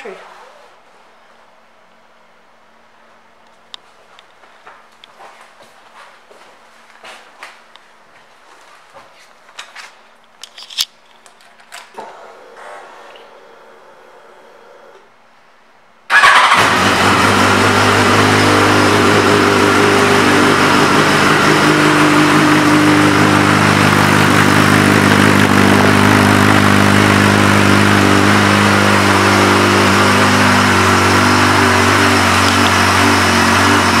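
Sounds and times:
motorcycle engine starting and idling: 16.1s - 34.0s.

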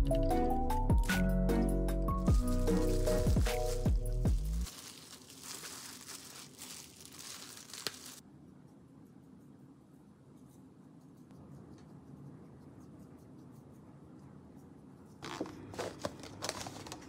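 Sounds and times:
plastic gloves crinkling: 2.3s - 8.2s, 15.2s - 17.0s.

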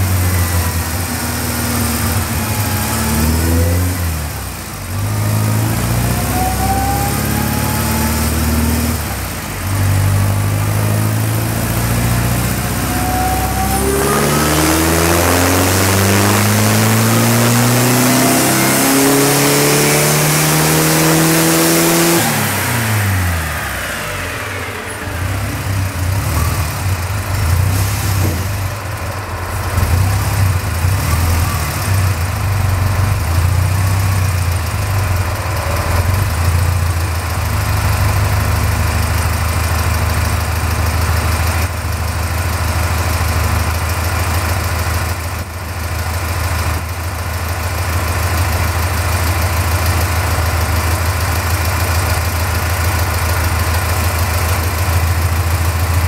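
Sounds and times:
car engine revving under load: 0.0s - 38.6s
engine idling unevenly: 22.3s - 56.0s.

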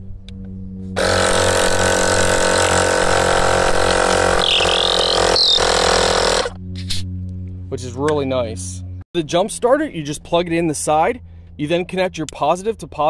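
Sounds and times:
air compressor motor hum: 1.0s - 6.6s
wavering high whistle: 4.4s - 5.8s.

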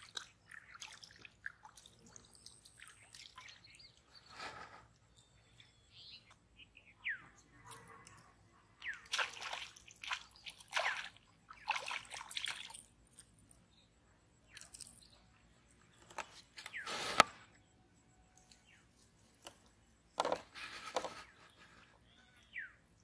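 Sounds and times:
fish splashing in water: 8.9s - 13.0s.

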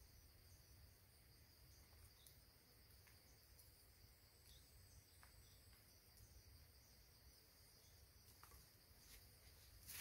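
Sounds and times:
high-pitched insect chorus: 0.0s - 10.0s.

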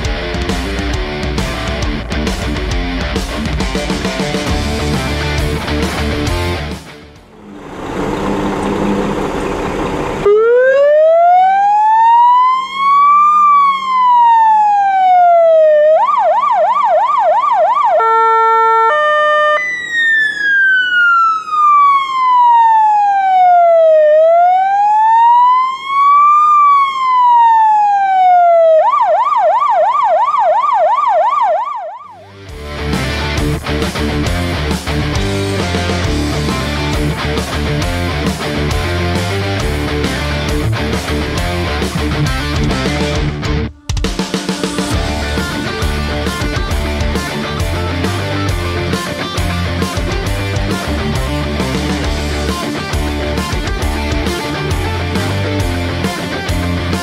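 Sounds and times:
siren wail: 7.3s - 32.5s, 43.6s - 57.0s
siren yelp: 10.2s - 32.4s, 43.6s - 57.0s
steady horn tone: 18.0s - 19.8s.

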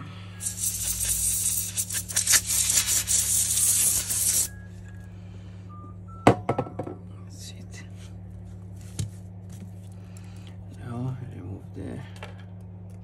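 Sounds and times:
compressed air spurts: 0.4s - 4.5s.

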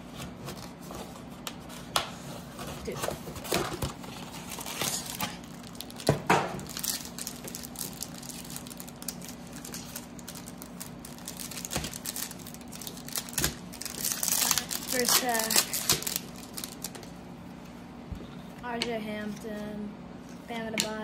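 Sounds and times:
foil packs crinkling: 2.8s - 17.1s.

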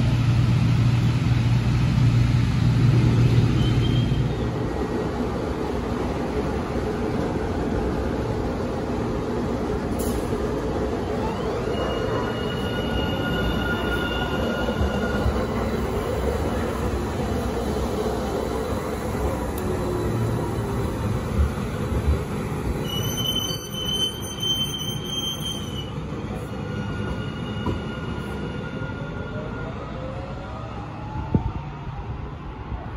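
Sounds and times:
train rumbling: 0.0s - 32.9s
high wheel squeal: 11.1s - 15.9s, 22.8s - 29.6s.

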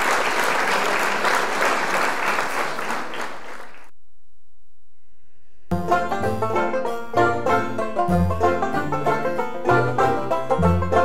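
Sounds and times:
crowd clapping: 0.0s - 3.9s.

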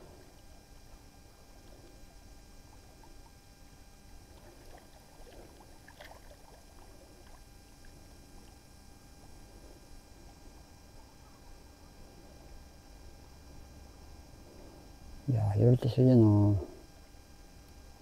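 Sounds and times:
low steady rumble: 0.0s - 18.0s
water lapping against rocks: 4.2s - 8.6s
small ticks and clicks: 17.6s - 18.0s.

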